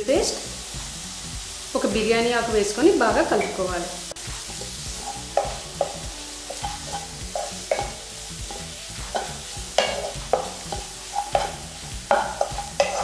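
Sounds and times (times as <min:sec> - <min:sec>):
food sizzling in hot oil: 0:00.0 - 0:13.0
spatula scraping a pan: 0:03.4 - 0:13.0.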